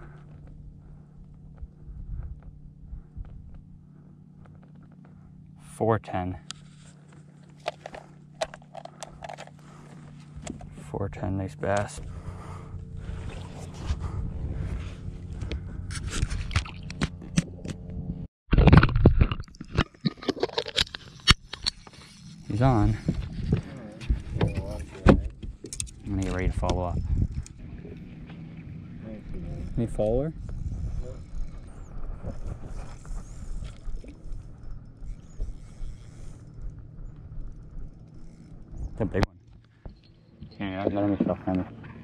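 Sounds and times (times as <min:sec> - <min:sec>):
wind rumble on microphone: 0:00.0 - 0:03.8, 0:12.0 - 0:19.4, 0:22.4 - 0:39.3
small scrapes and ticks: 0:00.0 - 0:05.4, 0:06.3 - 0:10.9, 0:11.6 - 0:17.8, 0:18.6 - 0:42.0
fishing reel winding: 0:29.6 - 0:38.8.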